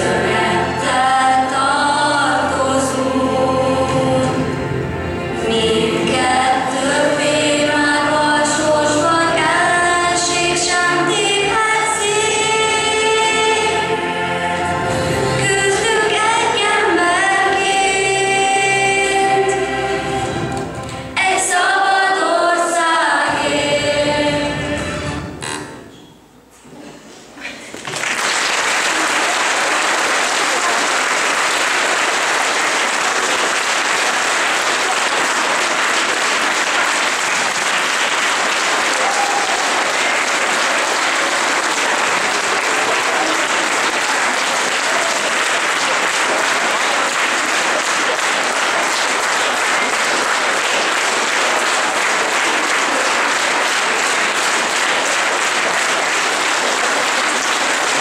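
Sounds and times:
audience applauding: 27.7 - 58.0.

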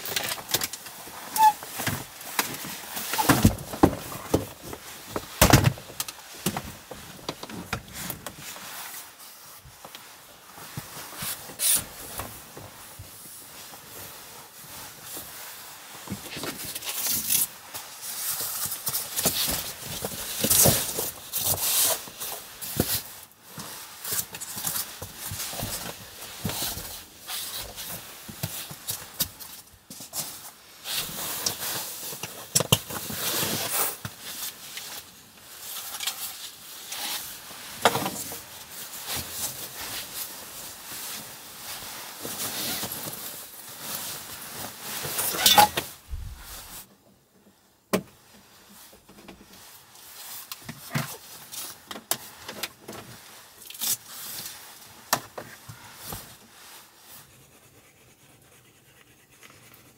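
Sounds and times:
rustling: 0.0 - 47.6.

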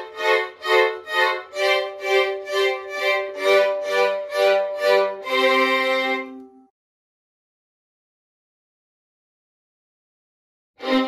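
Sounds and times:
violin ensemble bowed chords: 0.0 - 6.7, 10.8 - 11.0.

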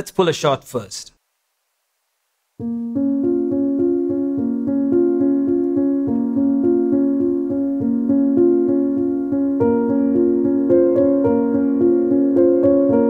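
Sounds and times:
piano playing repeating pattern: 2.6 - 13.0.

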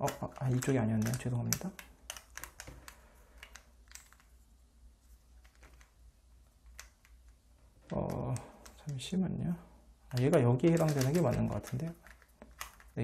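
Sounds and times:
plastic puzzle pieces clicking: 0.0 - 4.4, 6.6 - 9.0, 10.1 - 13.0.

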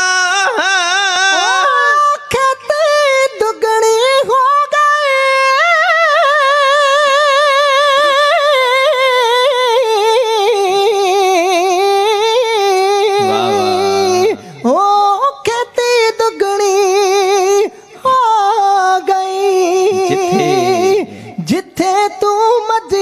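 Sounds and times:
person singing long note: 13.2 - 14.5, 19.9 - 21.2.

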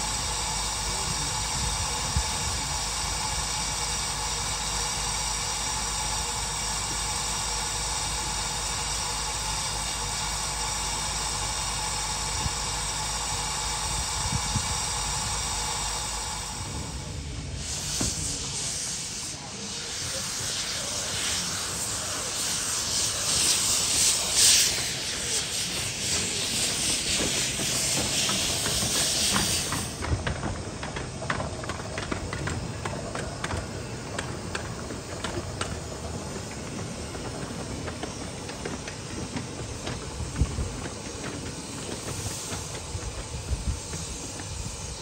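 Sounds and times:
low rumble of train: 0.0 - 45.0
steam locomotive venting steam: 0.0 - 45.0.

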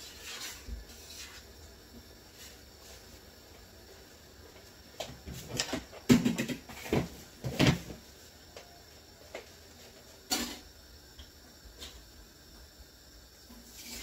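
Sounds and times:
knocks and clunks on kitchen counter: 5.3 - 8.0.

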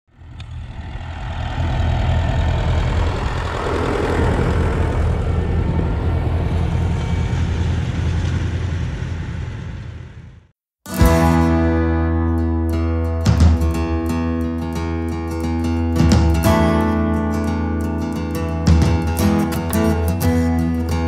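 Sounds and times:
tractor engine rumbling: 0.1 - 10.4.

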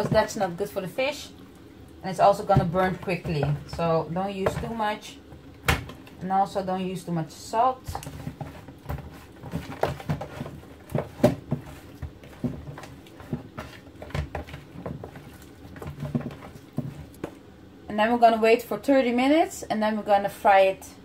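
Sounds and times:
hands rubbing fish in plastic tub: 7.8 - 17.4.

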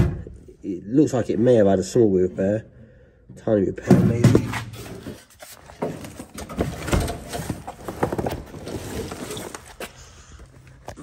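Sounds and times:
rustling handling noise: 4.1 - 11.0.

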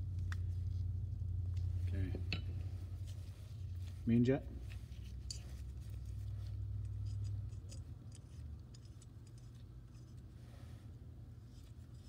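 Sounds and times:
gloved hands clicking and scratching: 0.0 - 0.7, 4.6 - 10.3.

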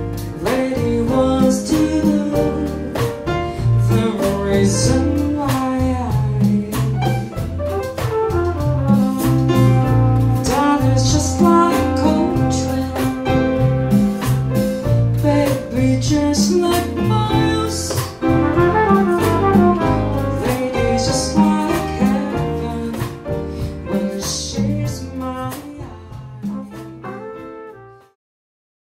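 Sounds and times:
latin jazz band playing: 0.0 - 28.2
woman singing: 0.4 - 3.2, 3.8 - 7.2, 10.4 - 13.3, 15.2 - 18.2, 20.2 - 23.2, 23.9 - 26.7.

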